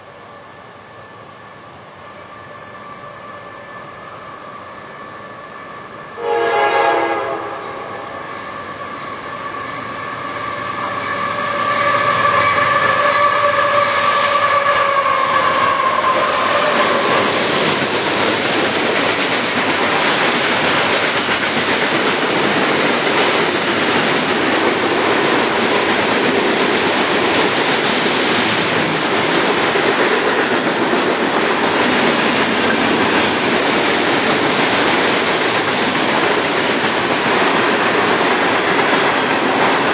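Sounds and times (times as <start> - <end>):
locomotive horn: 5.6 - 10.8, 11.4 - 17.2.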